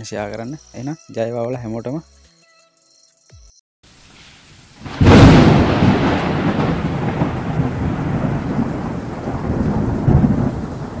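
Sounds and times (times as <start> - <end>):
thunder crash and rumble: 4.8 - 11.0.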